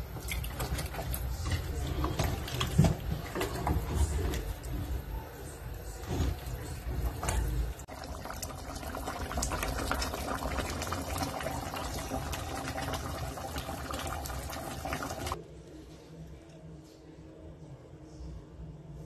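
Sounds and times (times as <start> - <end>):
stew bubbling and popping: 6.3 - 15.4.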